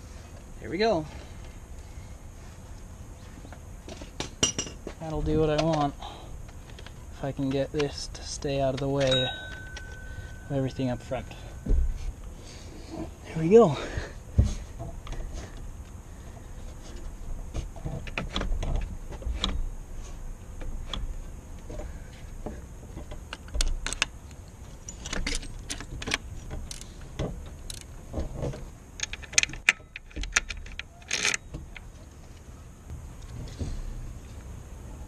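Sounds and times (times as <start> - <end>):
metallic clicks of tools handled: 24.8 - 27.0, 27.6 - 27.9, 29.0 - 31.8.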